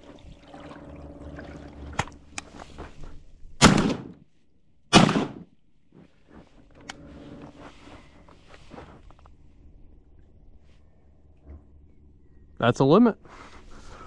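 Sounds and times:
shotgun shots: 3.6s - 4.2s, 4.9s - 5.5s.

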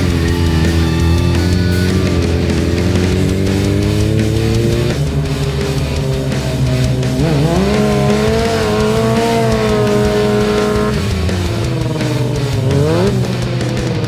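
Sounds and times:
background music: 0.0s - 14.0s
motorcycle engine revving: 0.0s - 14.0s.

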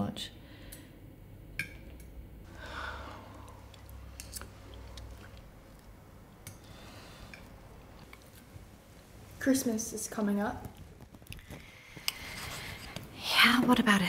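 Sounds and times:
chewing: 3.3s - 6.7s, 7.3s - 8.5s.

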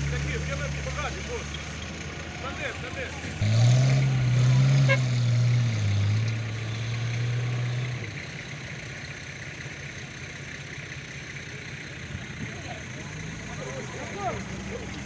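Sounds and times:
engine revving high: 3.1s - 8.3s.

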